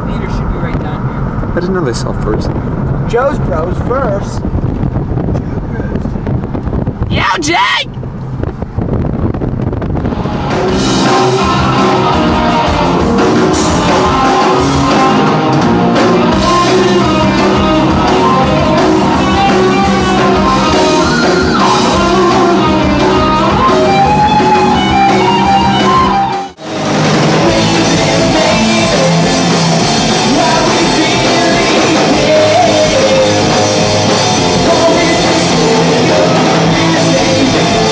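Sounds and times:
rock music with singing: 0:07.0 - 0:07.9, 0:10.0 - 0:37.9.

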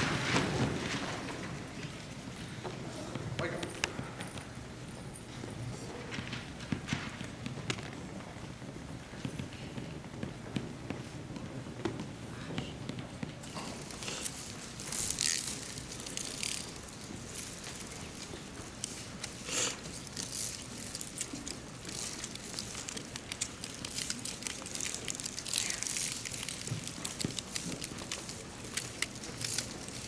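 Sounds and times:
paper sheets rustling: 0:00.0 - 0:02.2, 0:13.4 - 0:30.0
abacus beads clattering: 0:13.4 - 0:30.0.

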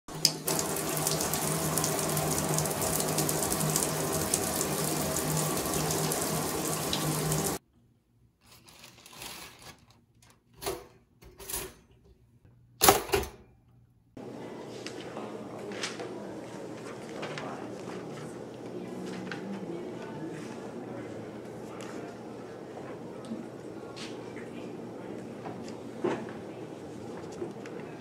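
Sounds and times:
shower spray hissing: 0:00.1 - 0:07.6.

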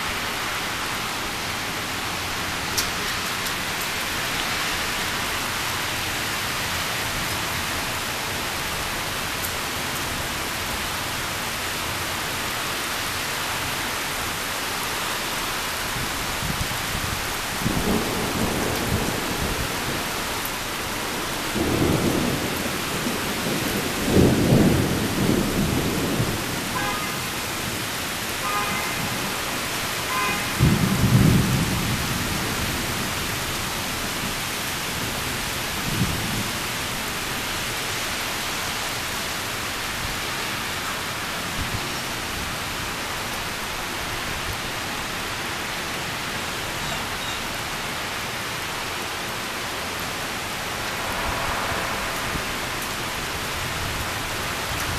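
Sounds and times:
heavy rain: 0:00.0 - 0:54.9
thunder rumbling: 0:16.5 - 0:27.9, 0:29.0 - 0:33.4, 0:50.4 - 0:54.9.

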